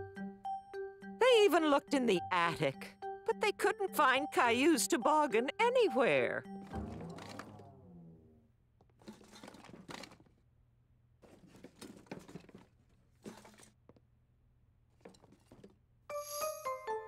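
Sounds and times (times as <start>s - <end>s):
rummaging through stored things: 6.6s - 7.7s, 8.8s - 10.4s, 11.2s - 14.1s, 14.9s - 15.9s.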